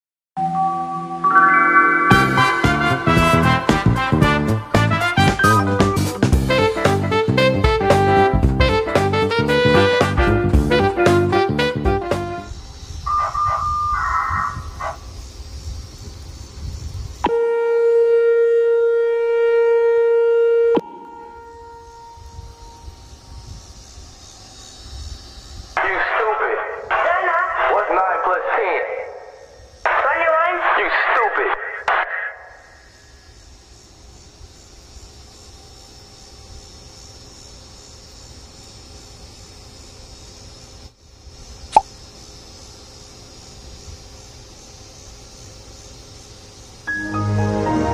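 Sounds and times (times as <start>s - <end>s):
warning siren tone: 0.4s - 4.6s, 13.1s - 15.1s, 17.3s - 23.6s
high insect drone: 0.5s - 47.9s
sharp pop: 20.8s - 21.5s.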